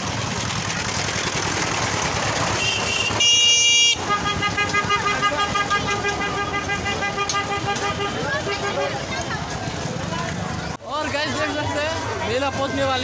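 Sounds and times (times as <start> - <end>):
crowd hubbub: 0.0 - 13.0
loud vehicle horn blast: 2.5 - 9.0.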